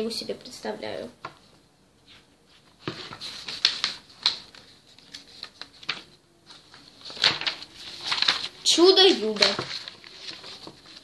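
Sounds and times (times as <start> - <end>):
paper rustling and flapping: 2.1 - 11.0.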